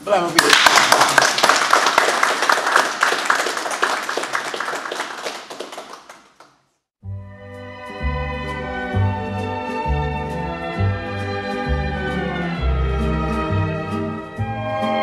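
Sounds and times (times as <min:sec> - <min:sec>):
people applauding: 0:00.4 - 0:06.6
music: 0:07.0 - 0:15.0.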